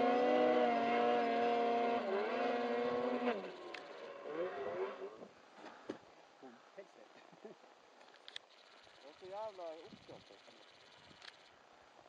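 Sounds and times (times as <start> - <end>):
snowmobile engine revving: 0.0 - 5.3.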